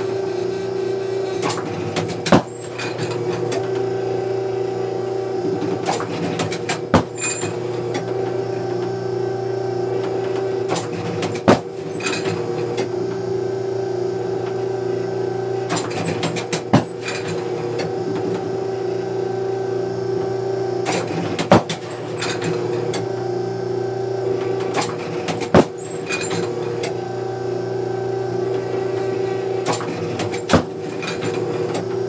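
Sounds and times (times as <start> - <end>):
machine hum: 0.0 - 32.0
mechanism clatter: 15.6 - 18.4, 24.4 - 27.0, 28.9 - 32.0.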